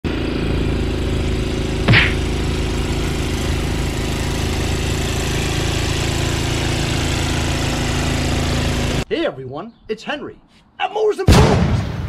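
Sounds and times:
snowblower engine running: 0.0s - 9.1s.

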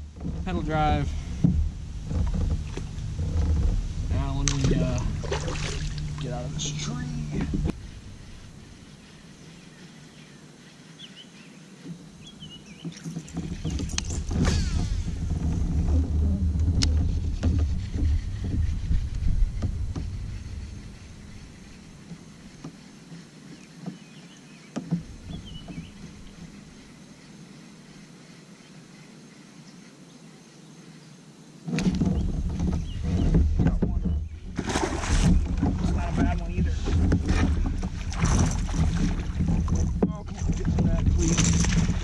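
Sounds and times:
wind buffeting microphone: 0.0s - 9.6s, 12.0s - 22.6s, 25.0s - 27.0s, 31.8s - 42.0s.

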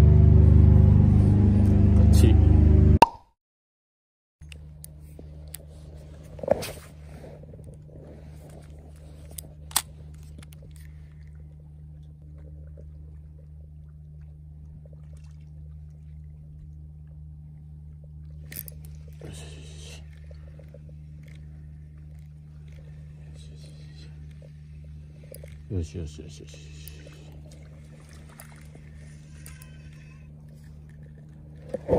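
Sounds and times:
steady low hum: 0.0s - 3.0s, 4.4s - 31.9s
fishing reel clicks and knocks: 9.2s - 10.6s, 18.4s - 18.9s, 29.2s - 30.6s.

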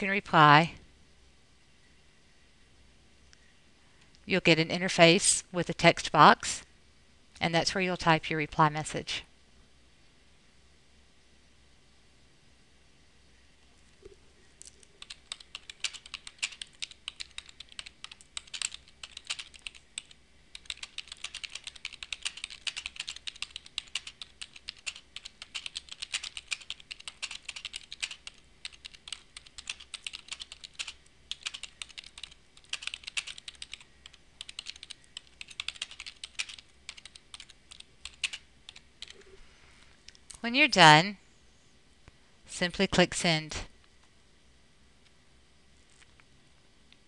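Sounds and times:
computer keyboard typing: 14.7s - 39.2s.

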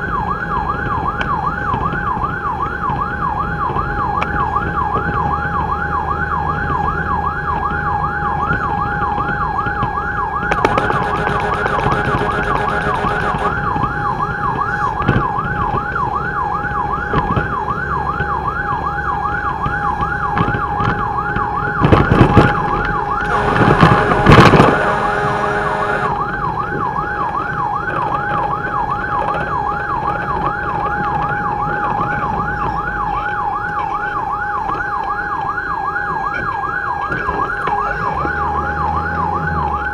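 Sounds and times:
fire truck siren yelping: 0.0s - 39.9s
truck engine and road noise: 0.0s - 39.9s
loud burst of noise: 23.2s - 26.2s.

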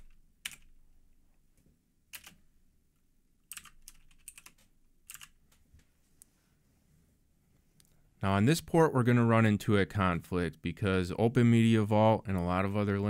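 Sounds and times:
computer keyboard typing: 0.0s - 0.8s, 2.1s - 2.4s, 3.4s - 5.4s.

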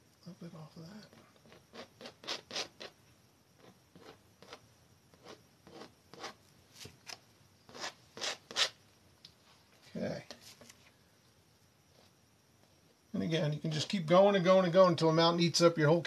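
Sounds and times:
palette knife scraping canvas: 1.4s - 3.0s, 5.2s - 6.4s, 7.7s - 8.8s.

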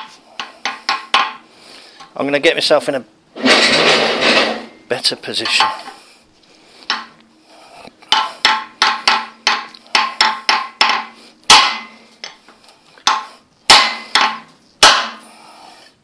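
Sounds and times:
hammer striking metal bar: 0.0s - 1.4s, 6.9s - 7.1s, 8.1s - 12.4s, 13.0s - 15.3s.

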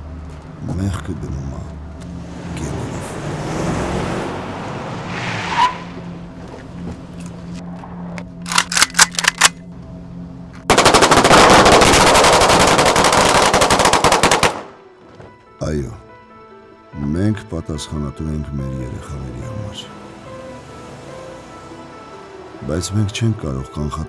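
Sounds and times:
automatic gunfire: 10.7s - 14.8s
gunshots: 10.7s - 14.8s.

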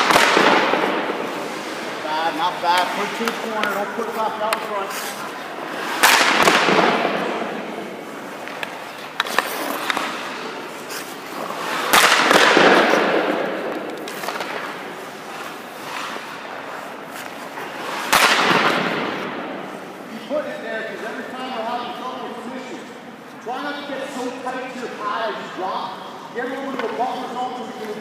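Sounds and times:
hockey stick cracking on puck: 0.0s - 1.9s, 2.5s - 7.3s, 8.2s - 19.5s
echo in ice rink: 0.0s - 28.0s.

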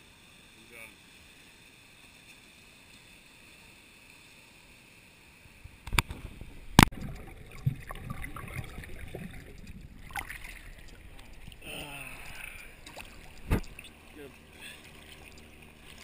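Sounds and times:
muffled water sloshing: 5.8s - 16.0s.

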